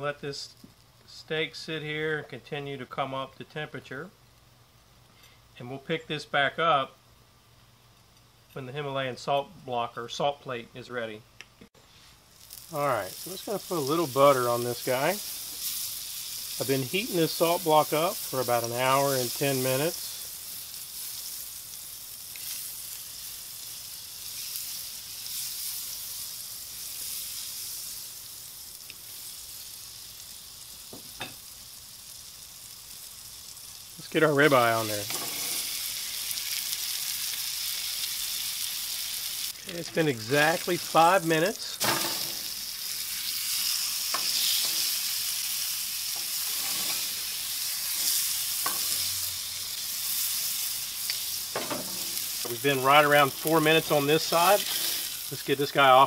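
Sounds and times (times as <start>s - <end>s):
butter sizzling: 11.8s - 56.0s.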